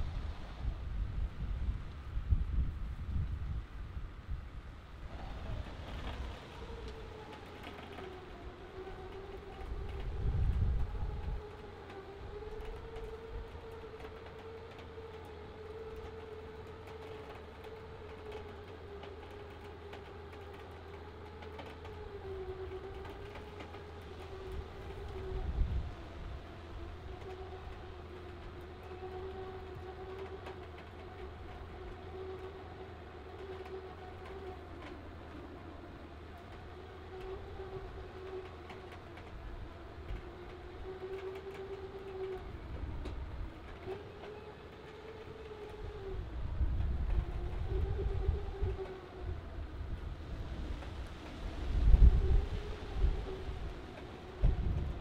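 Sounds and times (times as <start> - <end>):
wind rumble on microphone: 0.0 - 55.0
electric winch motor whining: 5.0 - 55.0.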